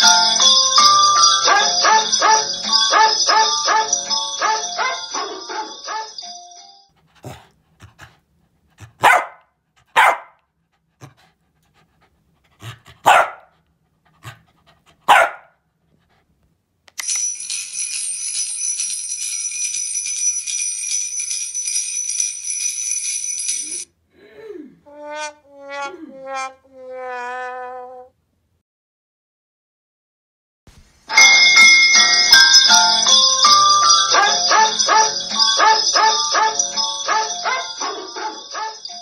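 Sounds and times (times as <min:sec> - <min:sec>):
small dog barking: 0:09.0 - 0:10.4, 0:13.0 - 0:13.5, 0:15.1 - 0:15.6.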